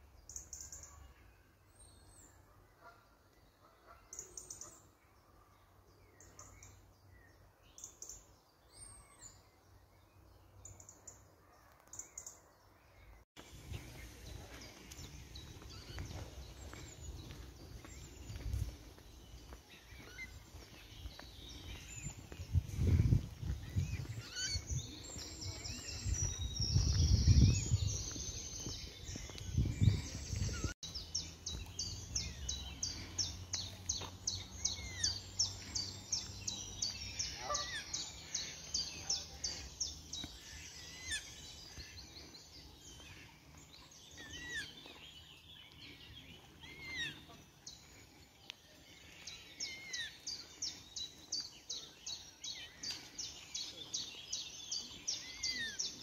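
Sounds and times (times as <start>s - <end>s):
small birds chirping and singing: 0.0s - 56.0s
low rumble on microphone: 21.7s - 30.7s.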